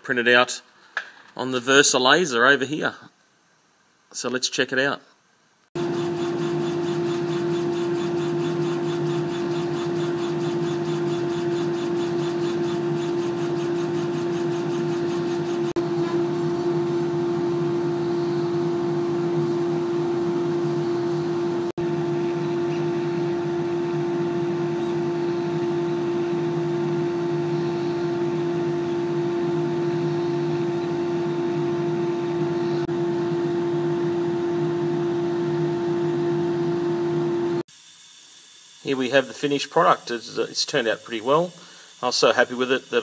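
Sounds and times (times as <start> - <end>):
laser cutter humming: 5.8 - 34.2.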